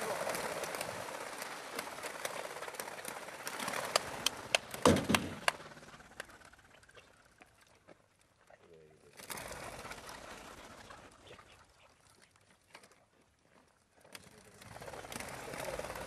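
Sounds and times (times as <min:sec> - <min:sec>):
fluttering wingbeats: 0:00.0 - 0:16.0
thump: 0:04.8 - 0:05.4.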